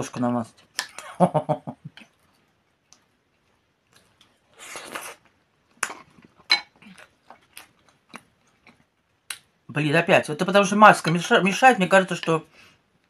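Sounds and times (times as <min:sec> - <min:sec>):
wet mouthful eating sound: 0:03.9 - 0:08.9.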